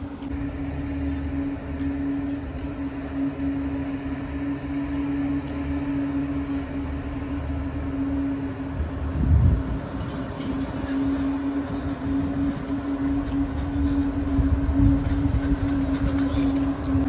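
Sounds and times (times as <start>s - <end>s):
machinery hum: 0.0s - 17.0s
uneven low rumble: 0.0s - 17.0s.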